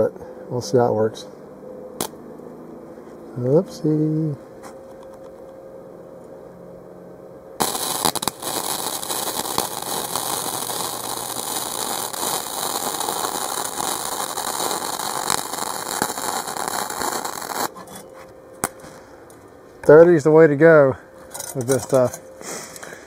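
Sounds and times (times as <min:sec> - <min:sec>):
welding arc crackling: 0:07.6 - 0:17.8.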